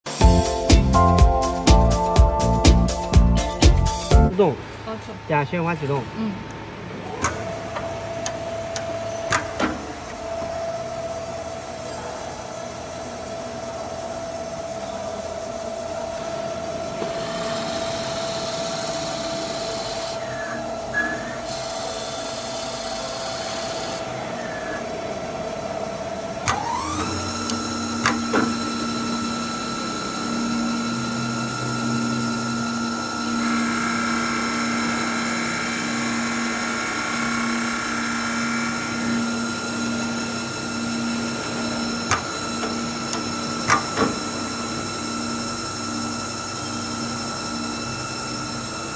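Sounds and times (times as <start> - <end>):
lathe motor whine: 0.0 - 48.9
turning tool cutting wood: 26.5 - 45.0
drill bit boring into wood: 26.5 - 48.9.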